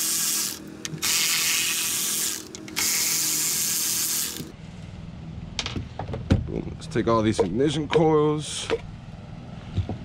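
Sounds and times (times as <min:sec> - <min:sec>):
electric ratchet whirring: 0:00.0 - 0:04.5.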